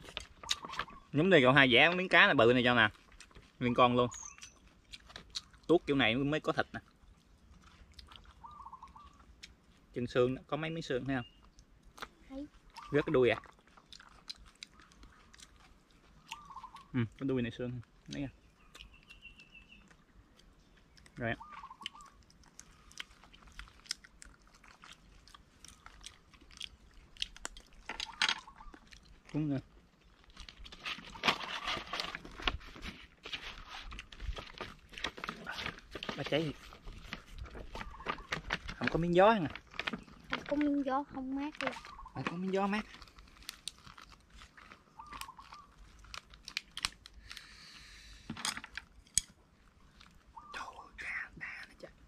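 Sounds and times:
person chewing: 0:00.0 - 0:01.1, 0:02.9 - 0:03.6, 0:04.3 - 0:05.7, 0:06.8 - 0:09.9, 0:11.4 - 0:17.3, 0:17.9 - 0:19.2, 0:19.8 - 0:38.8, 0:42.8 - 0:48.0
rustle: 0:27.8 - 0:48.9
rice paper crackling: 0:29.3 - 0:48.0.

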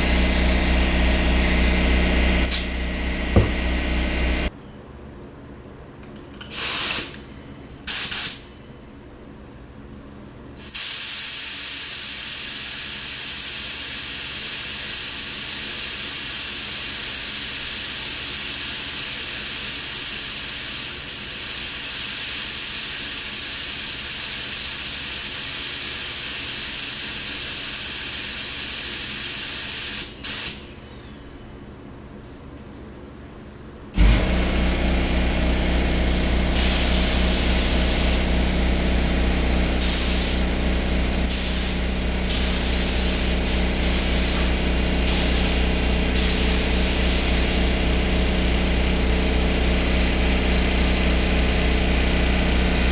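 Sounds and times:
paint spray gun hissing: 0:02.4 - 0:04.5, 0:06.5 - 0:07.2, 0:07.9 - 0:08.5, 0:10.6 - 0:30.6, 0:34.0 - 0:47.9.

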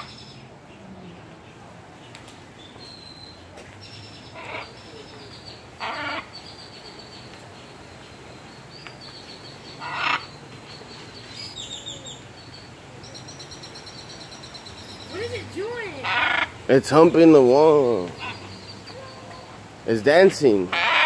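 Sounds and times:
small birds twittering: 0:00.0 - 0:21.0
macaw squawks: 0:05.8 - 0:06.4, 0:09.8 - 0:10.4, 0:16.0 - 0:16.6, 0:18.1 - 0:19.4, 0:20.7 - 0:21.0.

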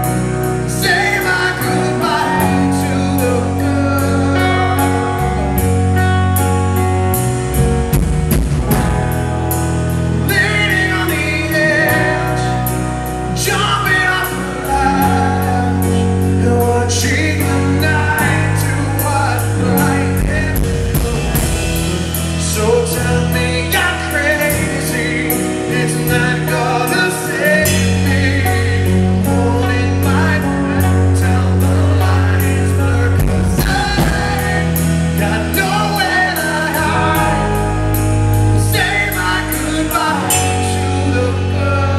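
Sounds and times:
man singing lead vocals: 0:00.0 - 0:06.9, 0:08.7 - 0:41.9
bass notes: 0:00.0 - 0:41.9
steady drum beat: 0:07.2 - 0:10.9, 0:19.8 - 0:23.9, 0:33.0 - 0:41.0.

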